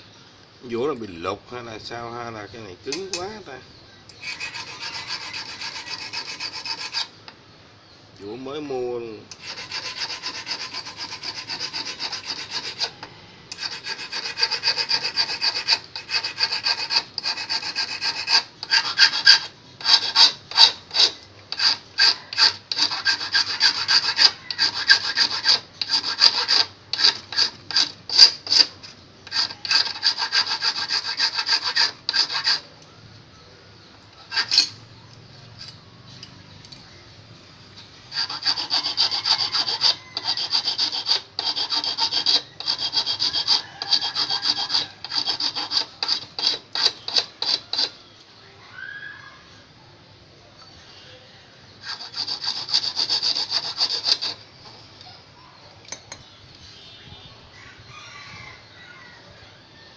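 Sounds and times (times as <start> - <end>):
steel file rasping on hook: 4.2 - 7.1, 9.3 - 32.7, 34.3 - 34.8, 38.1 - 48.0, 51.8 - 54.4.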